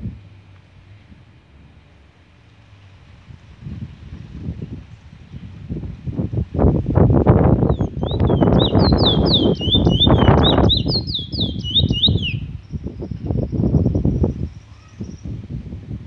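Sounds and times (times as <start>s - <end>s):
wind rumble on microphone: 0.0s - 16.0s
bird whistling song: 7.6s - 15.4s.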